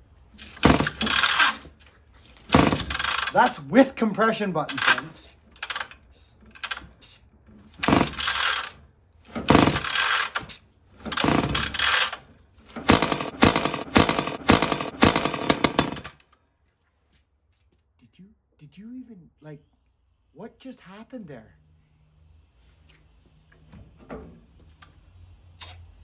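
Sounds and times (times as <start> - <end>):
chainsaw recoil starter pulls: 0.4 - 1.7, 2.4 - 3.6, 4.6 - 6.8, 7.8 - 16.2.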